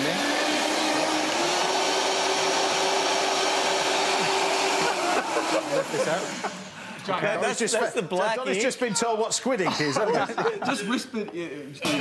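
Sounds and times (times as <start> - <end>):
blender running: 0.0 - 6.8.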